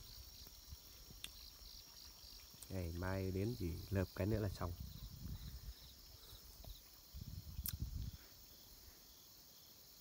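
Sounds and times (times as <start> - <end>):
crickets chirring: 0.0 - 10.0.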